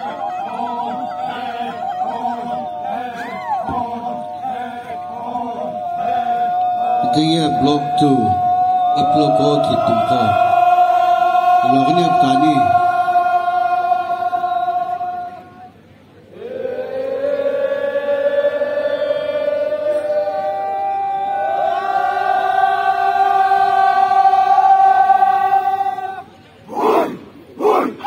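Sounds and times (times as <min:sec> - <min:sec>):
group of voices chanting: 0:00.0 - 0:15.7, 0:21.3 - 0:28.0.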